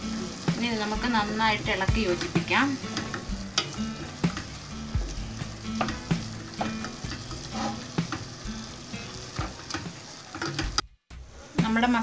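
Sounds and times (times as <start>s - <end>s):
food sizzling: 0.0s - 12.0s
wooden spatula scraping metal pot: 5.6s - 8.5s.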